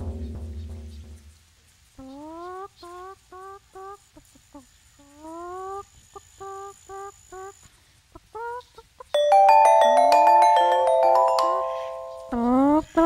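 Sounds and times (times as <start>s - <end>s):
chicken clucking: 2.0s - 9.1s
glockenspiel-like mallet notes: 9.2s - 12.6s.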